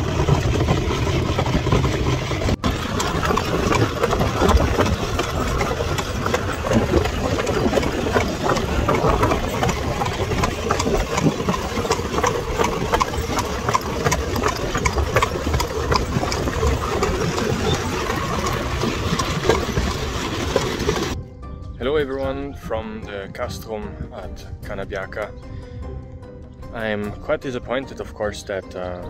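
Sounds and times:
cart wheels rumbling and rattling: 0.0s - 21.2s
horse hooves clopping: 0.0s - 21.2s.

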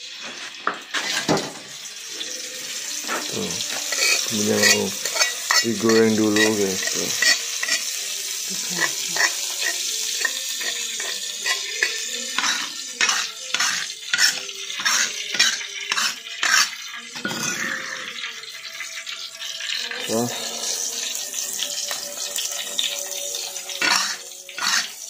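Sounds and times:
metal spatula scraping stone mortar: 0.9s - 1.4s, 3.6s - 8.0s, 8.6s - 18.2s, 23.8s - 25.0s.

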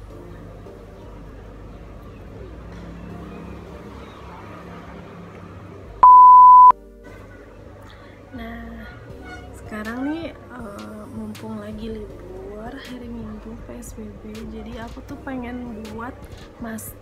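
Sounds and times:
loud beep tone: 6.0s - 6.7s.

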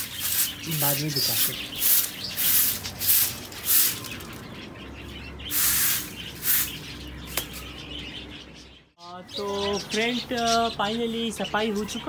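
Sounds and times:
broom sweeping concrete floor: 0.0s - 4.4s, 5.5s - 7.7s.

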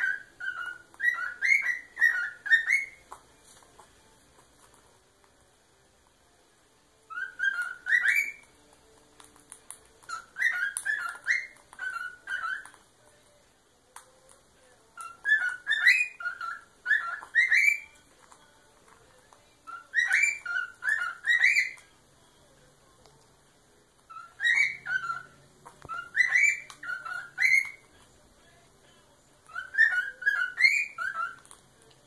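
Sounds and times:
cockatiel whistling: 0.0s - 3.2s, 7.0s - 8.6s, 10.0s - 12.8s, 15.0s - 18.1s, 19.6s - 22.0s, 24.1s - 28.0s, 29.4s - 31.6s.

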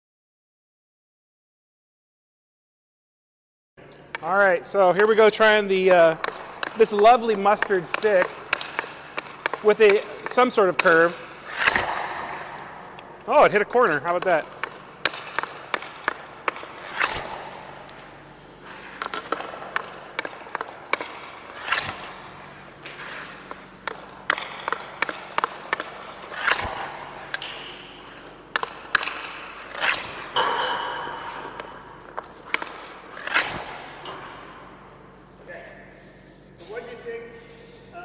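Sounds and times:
pucks striking boards: 4.0s - 35.2s
hockey stick blade cracking puck: 4.9s - 34.9s
stick blade scraping on ice: 5.4s - 12.7s, 13.3s - 34.4s.

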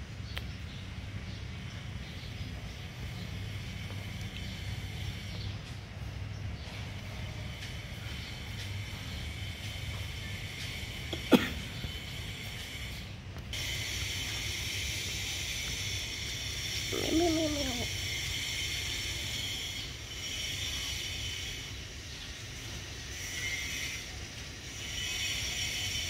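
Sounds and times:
high-pitched background hiss: 13.6s - 22.8s.

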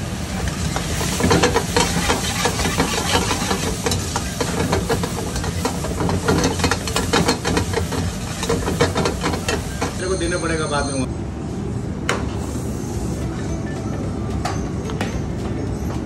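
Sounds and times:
ladle scraping steel wok: 0.5s - 10.0s.

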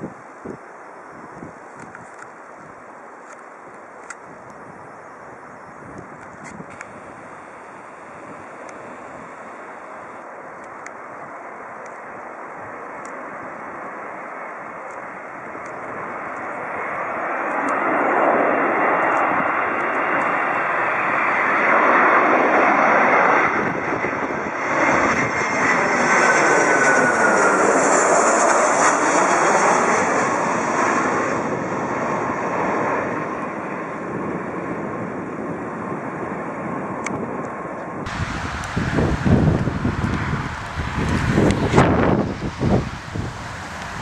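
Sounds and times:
jet airliner passing overhead: 3.5s - 44.0s
whine dropping in pitch: 38.1s - 44.0s.

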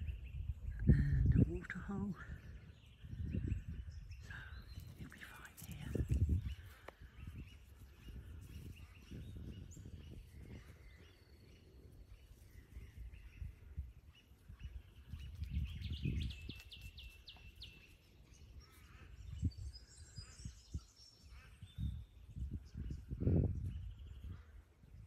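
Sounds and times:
birds calling: 0.0s - 25.0s
high bird chirps: 14.2s - 22.5s.

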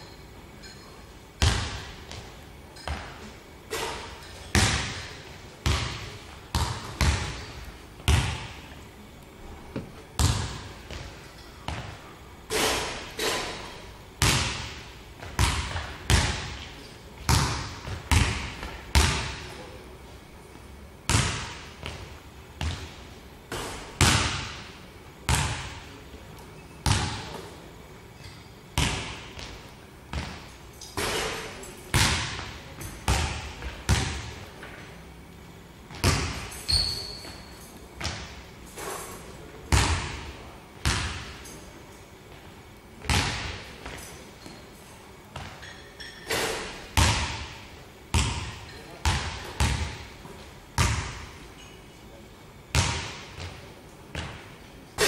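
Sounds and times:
basketball bouncing on hardwood floor: 4.5s - 8.6s, 9.7s - 11.0s, 48.1s - 50.0s.

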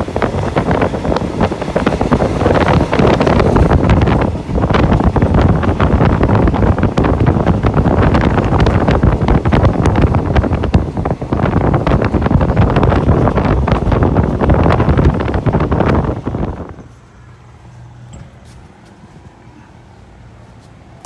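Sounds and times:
train running rumble: 0.0s - 19.4s
wind buffeting microphone: 0.0s - 19.4s.

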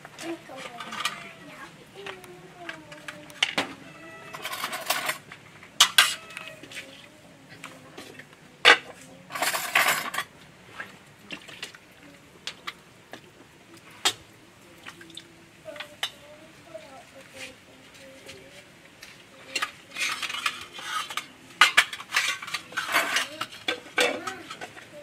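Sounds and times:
spoons scraping plates: 0.3s - 10.3s, 19.0s - 25.0s
plates and spoons clinking: 3.0s - 6.6s, 8.0s - 10.3s, 19.5s - 24.8s.

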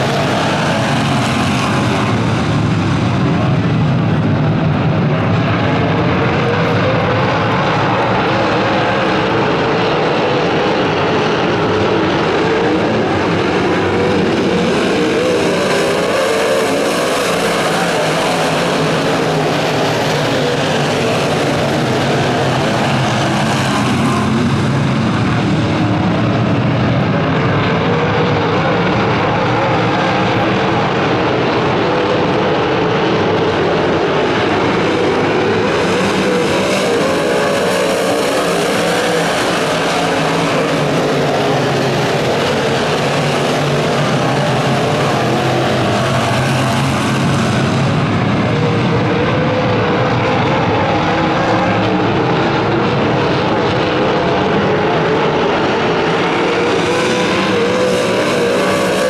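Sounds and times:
race car engines racing: 0.0s - 59.0s.

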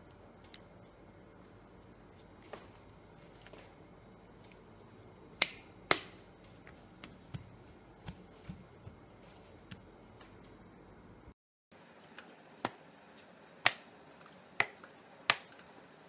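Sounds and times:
hand patting potato slices: 4.6s - 10.6s, 13.6s - 15.6s.

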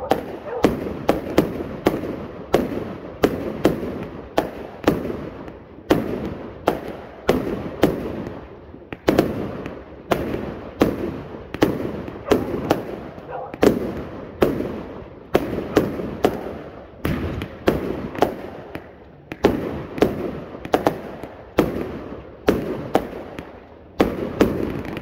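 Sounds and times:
firework bangs: 0.0s - 25.0s.

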